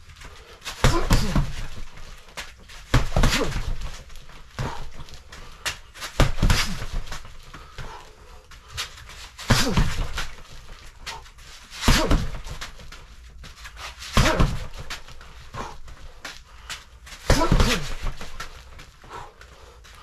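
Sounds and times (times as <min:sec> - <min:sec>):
gloved punches thudding: 0:00.7 - 0:08.0, 0:09.4 - 0:10.8, 0:11.8 - 0:12.9, 0:14.1 - 0:15.9, 0:17.2 - 0:18.8.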